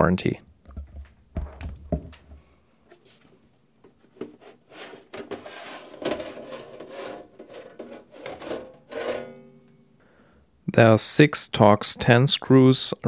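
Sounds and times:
metal case scraping: 0:04.2 - 0:09.7.

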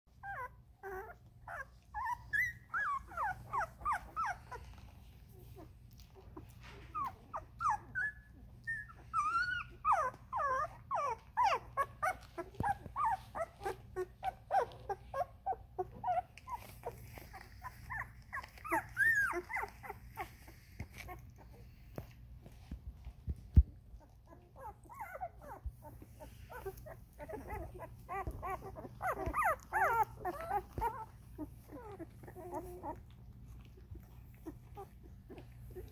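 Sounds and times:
puppies whimpering: 0:00.1 - 0:22.6, 0:23.8 - 0:35.9.

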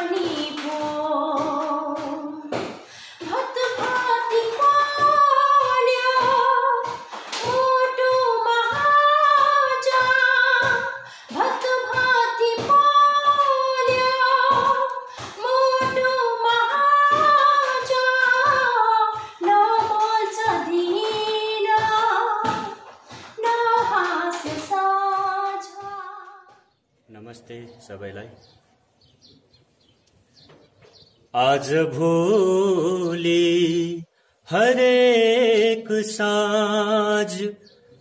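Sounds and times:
woman singing: 0:00.0 - 0:26.7.

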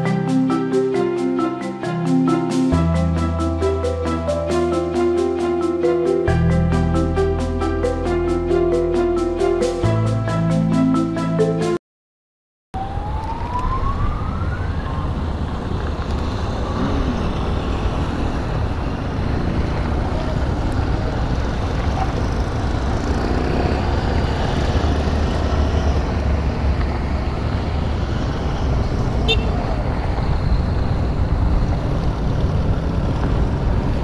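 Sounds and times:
music: 0:00.0 - 0:11.8
rising engine whine: 0:12.8 - 0:34.0
wind noise: 0:12.8 - 0:34.0
motorcycle engine rumble: 0:13.5 - 0:34.0.

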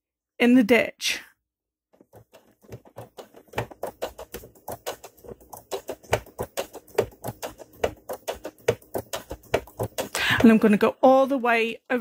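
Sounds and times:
sewing machine stitching: 0:02.0 - 0:10.8.

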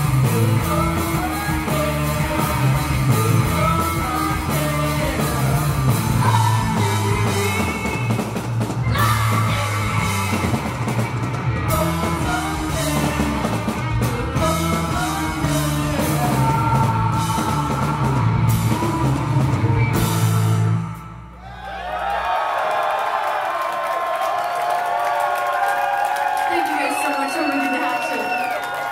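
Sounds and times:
person singing: 0:00.0 - 0:08.2, 0:08.9 - 0:10.8, 0:11.7 - 0:20.4
live rock band playing: 0:00.0 - 0:21.3.

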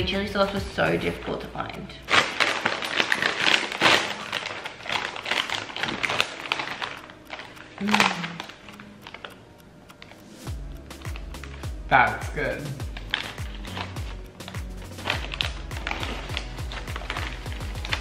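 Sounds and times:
chip packet crinkling: 0:01.9 - 0:10.1, 0:11.0 - 0:18.0
person humming mm: 0:07.8 - 0:08.6.

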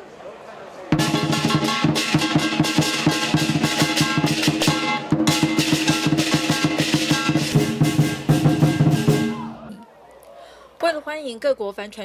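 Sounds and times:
big drum beating: 0:01.0 - 0:09.7
cymbals crashing: 0:01.0 - 0:09.7.

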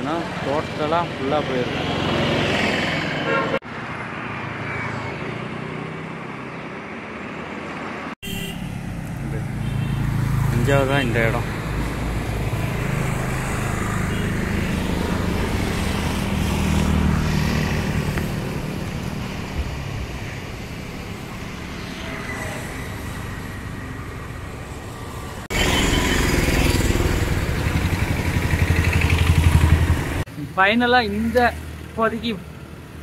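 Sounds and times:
vehicle engine passing: 0:08.7 - 0:32.6.

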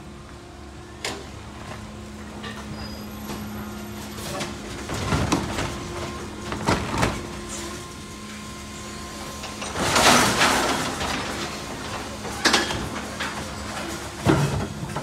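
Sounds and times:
garbage truck electric hum: 0:00.0 - 0:15.0
mechanical clatter and knocks: 0:09.4 - 0:15.0.

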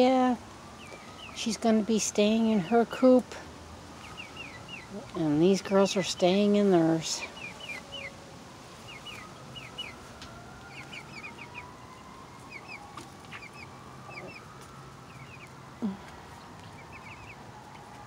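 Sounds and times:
young chickens peeping: 0:00.0 - 0:18.0.

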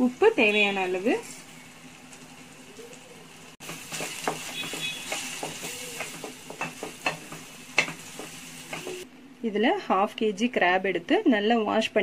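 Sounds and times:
masala sizzling in oil: 0:00.0 - 0:09.1
spatula scraping and knocking pan: 0:03.6 - 0:09.0.

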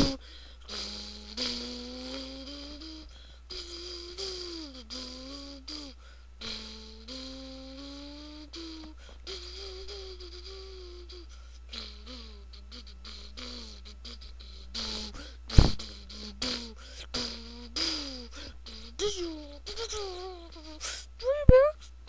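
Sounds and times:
person humming: 0:00.0 - 0:21.9
loud thump: 0:15.6 - 0:15.8.

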